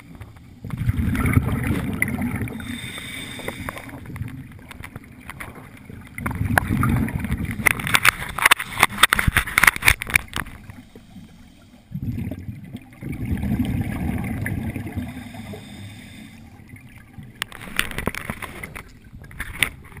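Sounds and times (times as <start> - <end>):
bubbles rumbling and popping: 0.0 - 10.9, 11.8 - 15.7, 16.4 - 20.0
diver breathing through regulator: 2.5 - 4.0, 15.0 - 16.5.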